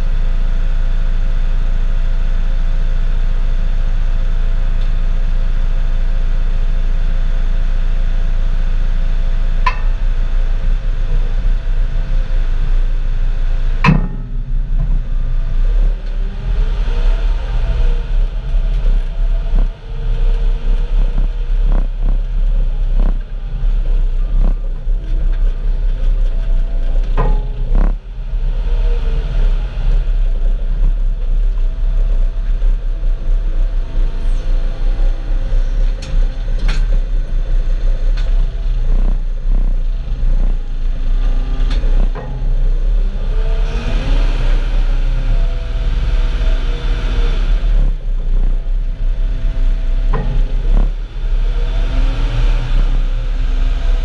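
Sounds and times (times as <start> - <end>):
loader engine rumbling: 0.0 - 54.0
sharp knocks and clanks: 9.7 - 10.3, 13.8 - 19.8, 26.9 - 28.0.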